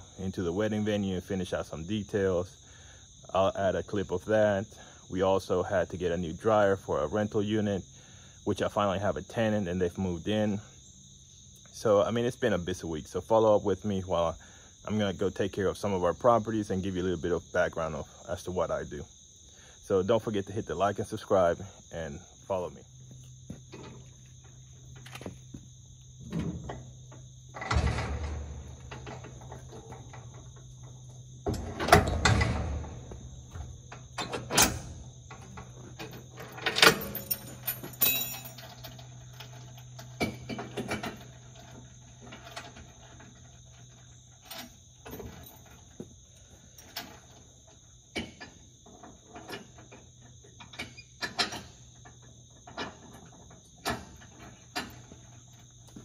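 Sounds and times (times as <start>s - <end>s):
insects droning: 0.0s - 56.0s
metal trailer hitch clanking: 26.2s - 56.0s.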